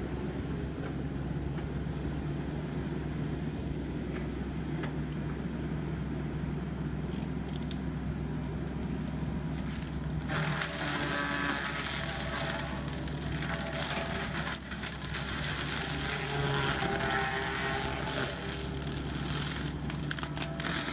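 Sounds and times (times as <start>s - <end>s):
track loader engine drone: 0.0s - 20.9s
wood crackling and splintering: 7.1s - 20.9s.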